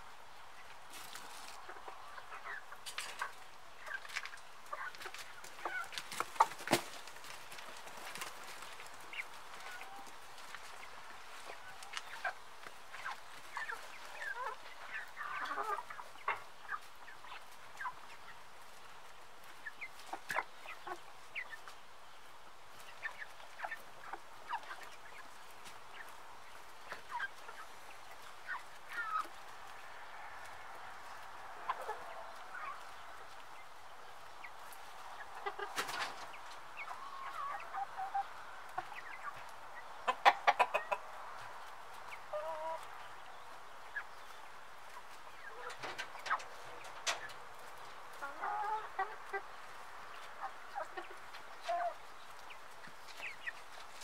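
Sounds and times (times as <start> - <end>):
hens clucking: 0.0 - 54.0
hens squawking: 35.0 - 43.1.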